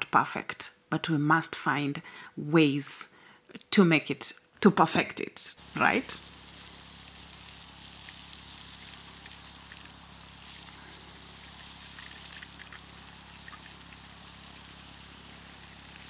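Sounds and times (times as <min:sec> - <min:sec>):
water spraying from hose: 0:05.6 - 0:16.0.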